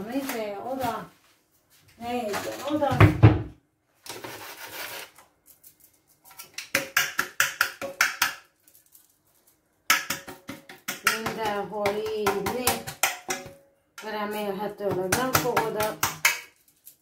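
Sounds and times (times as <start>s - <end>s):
flour rustling in cake pan: 0.0s - 2.3s
tapping on cake pan: 9.9s - 14.1s.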